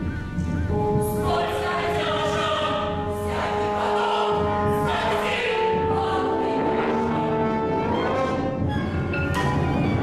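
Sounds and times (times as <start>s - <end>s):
slow choral chords: 1.1s - 8.4s.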